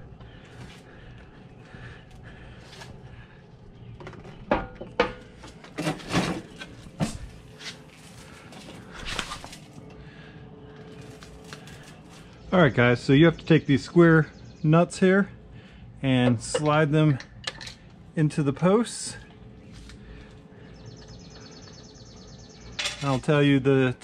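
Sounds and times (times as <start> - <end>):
hardware knocks and clunks: 4.0 - 7.3
hardware clatter: 22.8 - 23.2.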